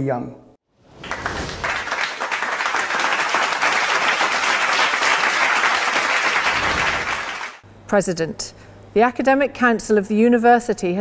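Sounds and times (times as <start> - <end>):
crowd applauding: 1.0 - 7.6.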